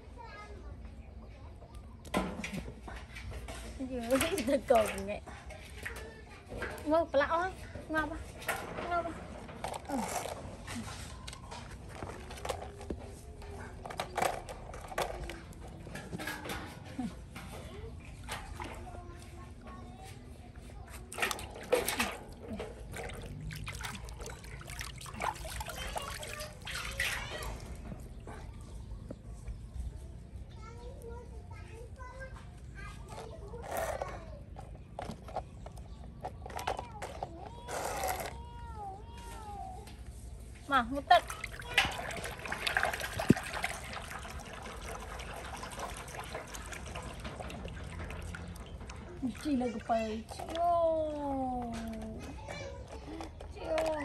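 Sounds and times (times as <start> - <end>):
water splashing in metal basin: 2.5 - 10.4, 11.1 - 19.4, 21.0 - 28.3, 40.8 - 52.0.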